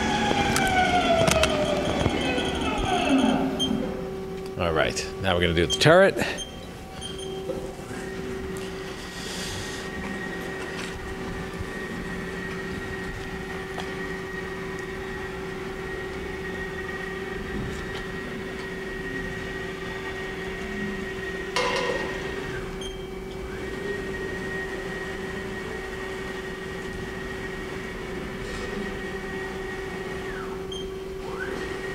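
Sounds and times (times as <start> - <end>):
high machine whine: 0.0 - 31.9
machine hum: 0.0 - 31.9
loud burst of noise: 21.6 - 22.9.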